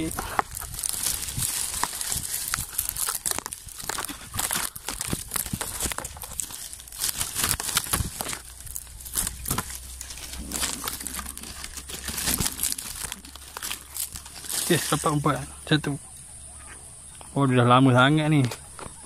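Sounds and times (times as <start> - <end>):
leaflets snapping: 0.0 - 15.3
palm fronds rustling and crackling: 0.0 - 16.2.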